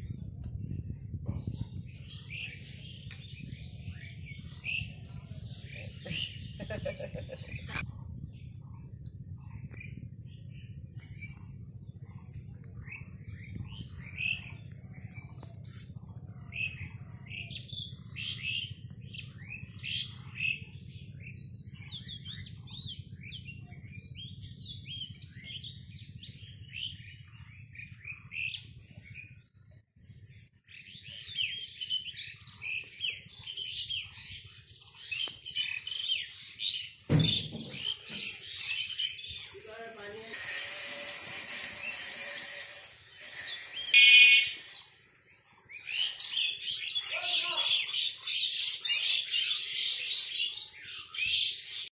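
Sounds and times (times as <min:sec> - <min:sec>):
small birds chirping: 0:00.0 - 0:51.9
loud thump: 0:37.1 - 0:38.3.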